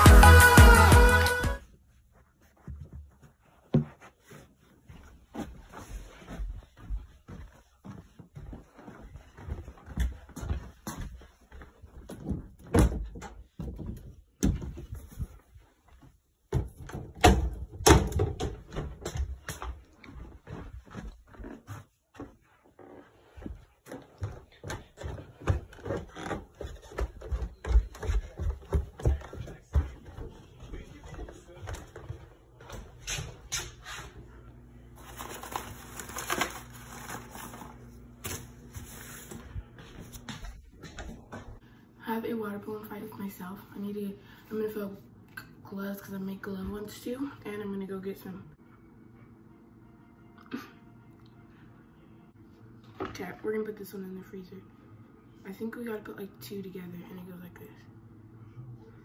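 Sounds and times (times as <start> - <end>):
footsteps: 0.1 - 17.2, 18.1 - 41.7
rustling and knocks of household things: 16.5 - 21.3, 35.0 - 41.6.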